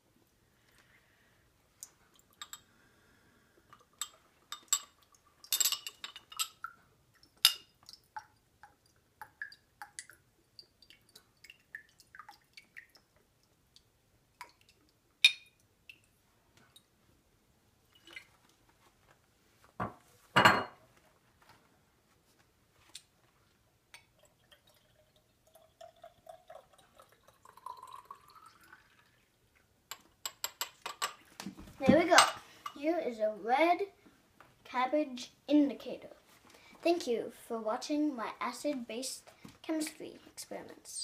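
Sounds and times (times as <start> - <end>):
glassware clinking: 2.4 - 2.7, 4.0 - 6.6, 20.4 - 20.8, 32.2 - 32.8
liquid pouring: 7.8 - 13.2, 17.9 - 18.4, 24.0 - 29.5.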